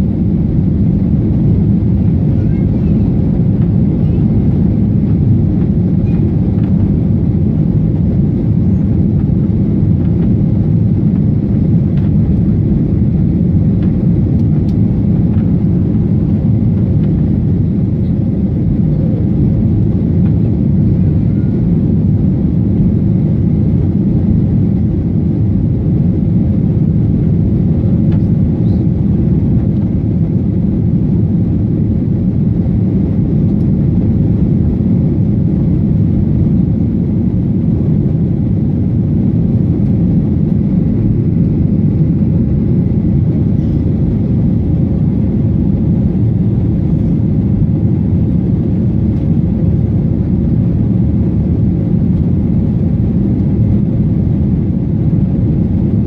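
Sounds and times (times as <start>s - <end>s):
jet engines rumbling: 0.0s - 56.0s.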